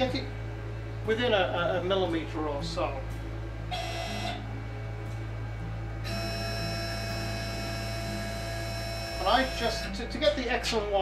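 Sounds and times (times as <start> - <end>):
electrical hum: 0.0 - 11.0
stepper motors whining: 3.7 - 4.6, 6.1 - 10.4.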